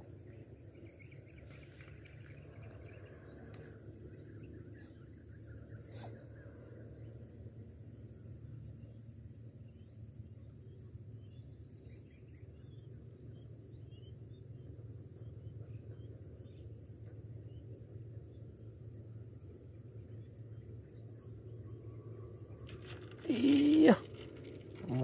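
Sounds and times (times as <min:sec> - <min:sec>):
insects droning: 0:00.0 - 0:25.0
faint chirps: 0:00.2 - 0:07.7, 0:20.0 - 0:25.0.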